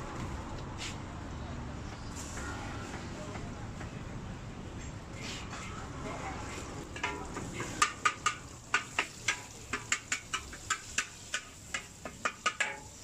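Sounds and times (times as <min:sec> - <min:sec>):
metal spatula scraping a wok: 0:05.2 - 0:13.0
frying sizzle: 0:05.5 - 0:13.0.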